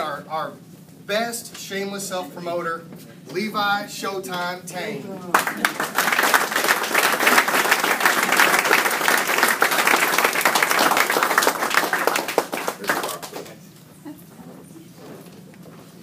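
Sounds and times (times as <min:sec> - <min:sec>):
people applauding: 0:05.3 - 0:13.6.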